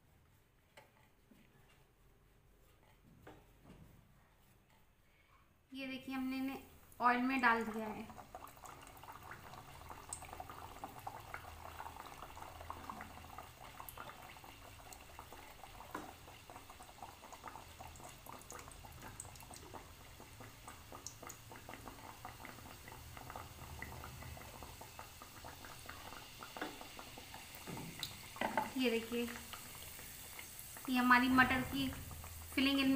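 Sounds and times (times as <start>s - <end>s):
deep-frying sizzle in oil: 6.2s - 32.9s.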